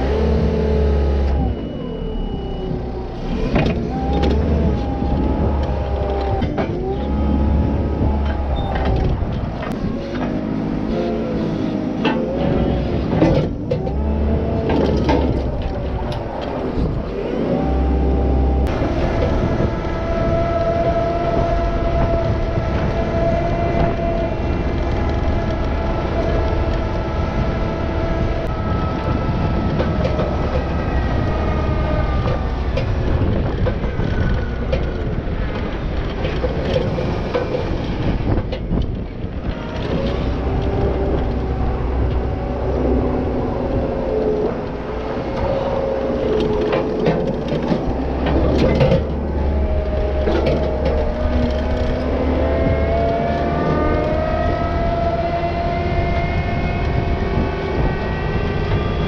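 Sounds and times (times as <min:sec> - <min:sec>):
loader engine revving: 0:00.0 - 0:59.0
metal clanks and rattles: 0:12.0 - 0:17.1, 0:44.6 - 0:54.2.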